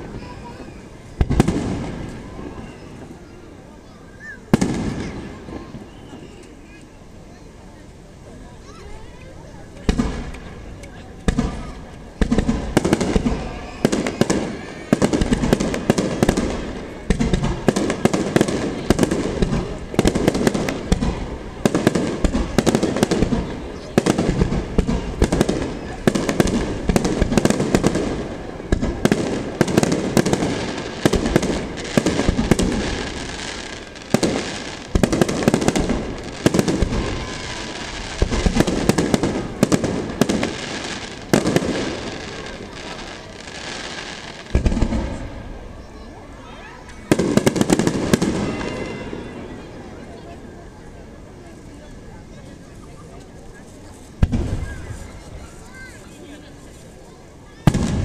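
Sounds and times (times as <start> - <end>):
dense firework crackle: 0.0 - 3.6, 4.4 - 6.8, 8.3 - 58.0.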